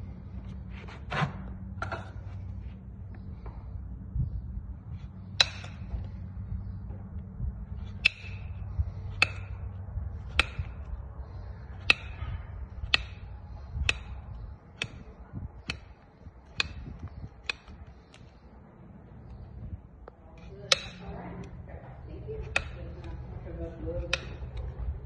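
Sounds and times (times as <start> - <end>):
hammer tapping on nails: 10.2 - 18.3, 20.6 - 21.5, 24.0 - 24.7.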